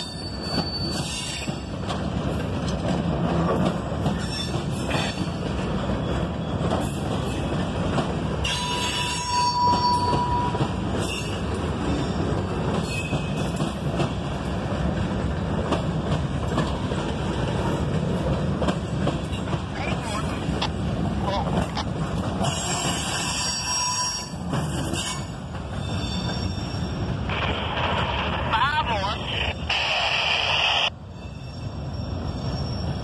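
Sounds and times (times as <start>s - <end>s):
high metallic wheel squeal: 0.0s - 1.5s, 8.4s - 11.4s, 22.4s - 27.1s, 31.1s - 33.0s
train cars rumbling on rails: 0.0s - 33.0s.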